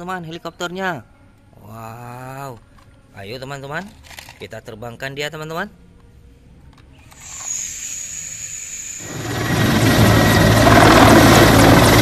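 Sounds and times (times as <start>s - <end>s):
toy helicopter rotor whine: 7.1s - 12.0s
military helicopter flying low: 9.0s - 12.0s.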